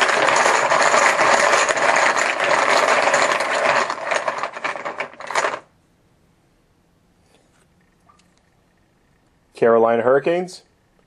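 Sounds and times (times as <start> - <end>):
chips rattling in container: 0.0 - 5.7.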